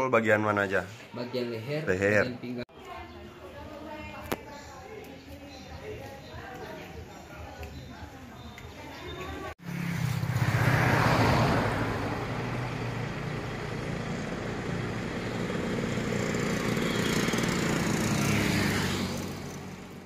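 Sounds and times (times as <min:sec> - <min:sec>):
motorcycles passing: 0:08.9 - 0:20.0
motor scooter passing: 0:09.5 - 0:20.0.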